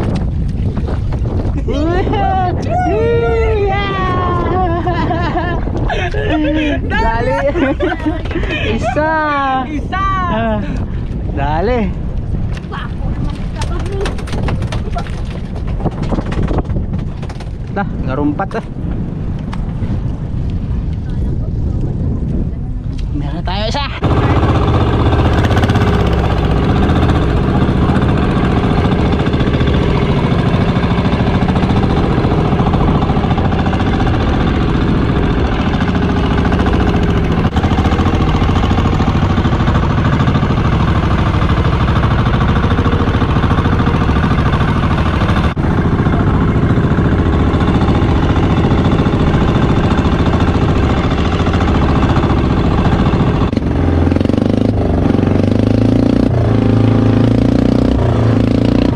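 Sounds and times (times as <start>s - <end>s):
boat engine knocking drone: 13.2s - 17.7s, 24.0s - 58.9s.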